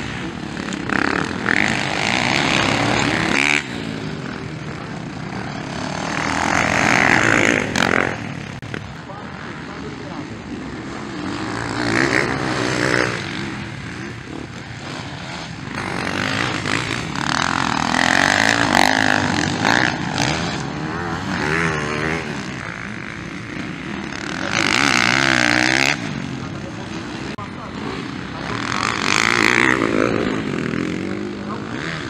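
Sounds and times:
motocross bikes revving past: 0.0s - 32.0s.

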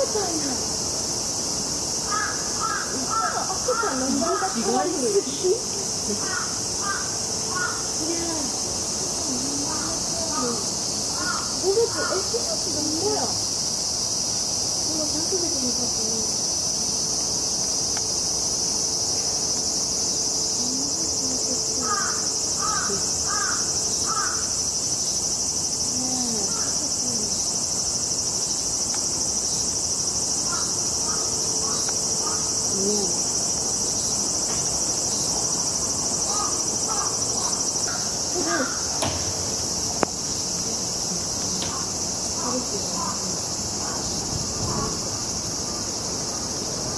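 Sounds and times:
high-pitched insect drone: 0.0s - 46.9s
sharp click: 39.0s - 40.2s.

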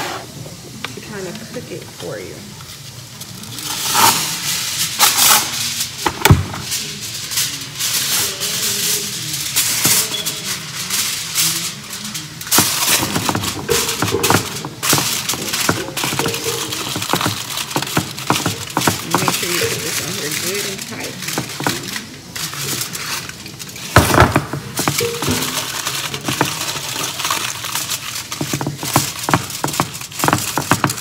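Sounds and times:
aluminium foil tearing: 2.6s - 31.0s
foil crinkling and crackling: 2.6s - 31.0s.

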